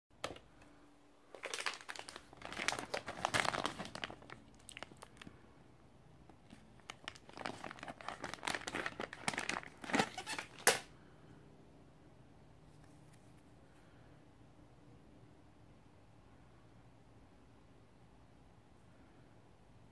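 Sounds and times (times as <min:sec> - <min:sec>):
plastic packaging crinkling: 0:01.3 - 0:05.3, 0:06.3 - 0:10.9
sharp plastic crackle: 0:01.3 - 0:05.3, 0:06.3 - 0:10.9.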